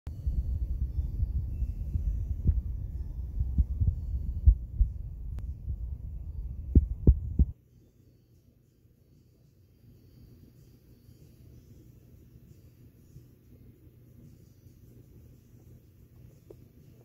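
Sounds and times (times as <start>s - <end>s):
low rumble: 0.1s - 7.6s.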